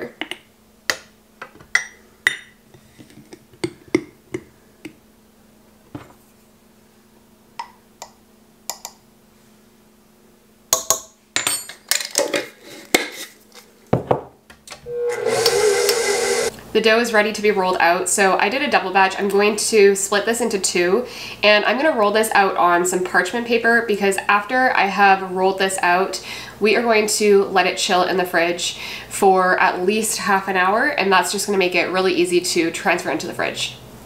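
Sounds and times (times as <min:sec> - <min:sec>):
faint steady hum: 0:12.5 - 0:34.0
stand mixer motor: 0:14.9 - 0:16.5.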